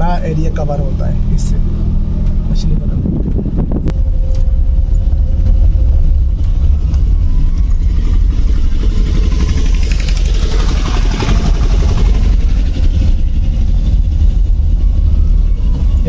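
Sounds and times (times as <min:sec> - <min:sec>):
car engine and road rumble: 0:00.0 - 0:16.0
rough tyre noise: 0:00.0 - 0:16.0.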